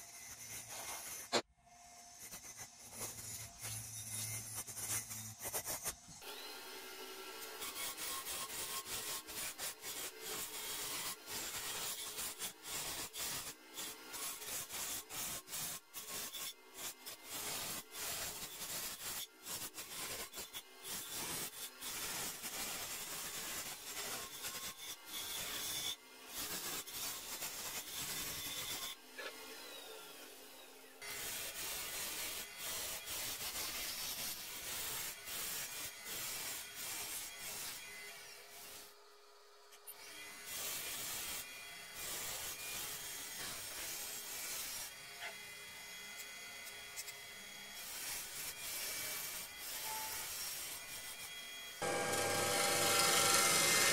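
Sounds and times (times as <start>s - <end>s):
lathe tool scraping wood: 2.2s - 30.0s, 51.8s - 53.9s.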